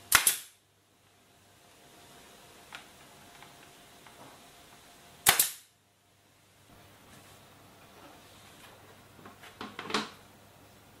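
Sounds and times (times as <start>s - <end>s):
nail gun firing into wood: 0.1s - 0.6s, 5.2s - 5.7s.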